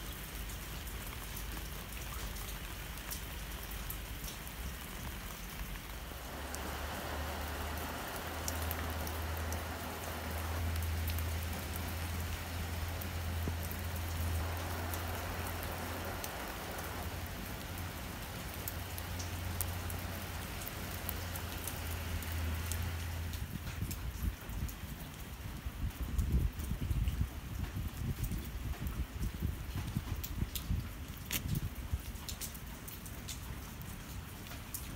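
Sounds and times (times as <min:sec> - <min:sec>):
rain on soil and leaves: 0:00.0 - 0:34.9
steady low rumble: 0:05.2 - 0:24.7.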